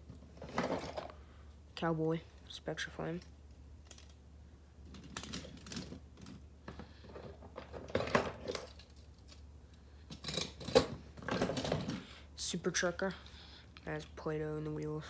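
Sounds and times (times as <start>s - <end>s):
toy trucks clattering together: 4.8s - 6.4s, 7.0s - 9.5s, 10.1s - 12.0s.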